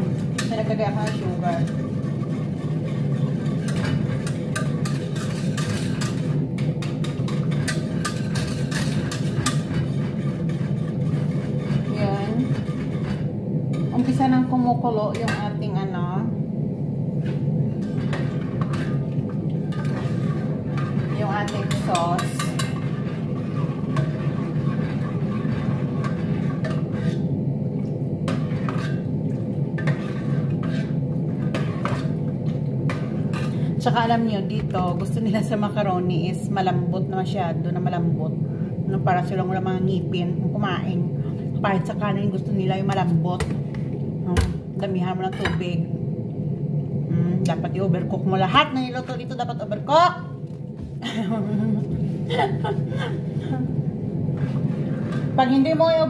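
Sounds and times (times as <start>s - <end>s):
spoon scraping metal pot: 0.0s - 14.2s, 17.2s - 27.3s, 29.8s - 32.2s, 54.3s - 55.4s
steady low hum: 0.0s - 56.0s.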